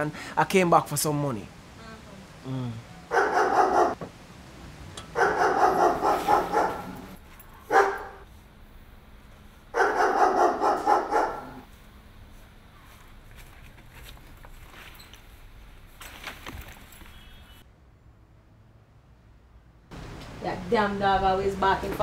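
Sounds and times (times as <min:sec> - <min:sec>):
dog barking: 0:03.1 - 0:04.0, 0:05.1 - 0:08.2, 0:09.7 - 0:11.7.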